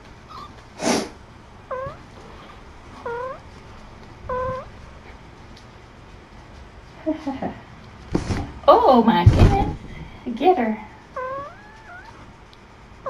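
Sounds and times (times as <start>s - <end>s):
kitten meowing: 0.3s - 0.6s, 1.7s - 2.1s, 3.0s - 3.5s, 4.3s - 4.7s, 11.2s - 12.3s.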